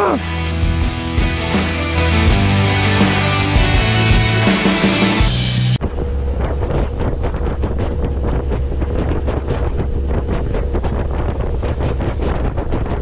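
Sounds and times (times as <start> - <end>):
low rumble: 0.5 - 13.0
wind buffeting microphone: 5.8 - 13.0.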